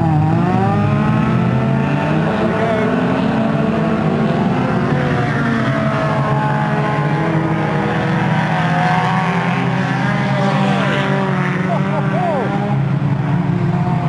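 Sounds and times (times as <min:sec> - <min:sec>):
many car engines running: 0:00.0 - 0:14.0.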